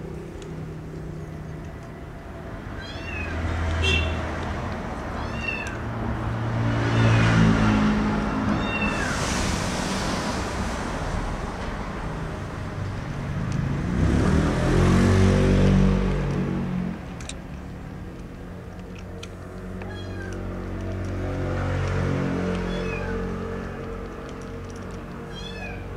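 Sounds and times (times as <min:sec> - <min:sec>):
cat chirping: 0:02.8 - 0:03.4, 0:05.1 - 0:05.8, 0:19.8 - 0:20.4, 0:22.6 - 0:23.2, 0:25.3 - 0:25.9
cat making drawn-out calls: 0:05.1 - 0:05.9, 0:19.8 - 0:20.5, 0:25.3 - 0:25.9.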